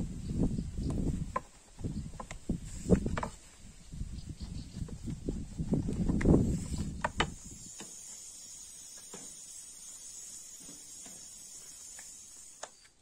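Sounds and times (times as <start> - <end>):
insects chirring: 7.0 - 13.0.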